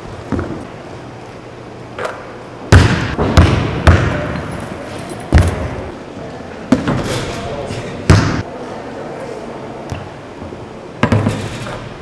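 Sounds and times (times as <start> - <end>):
basketball bouncing on hardwood: 2.7 - 4.5.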